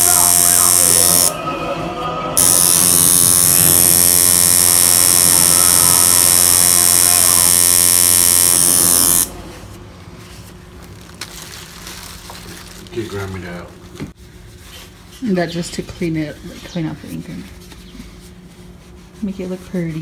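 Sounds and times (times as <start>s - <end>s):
tattoo machine buzzing: 0.0s - 1.4s, 2.4s - 9.3s.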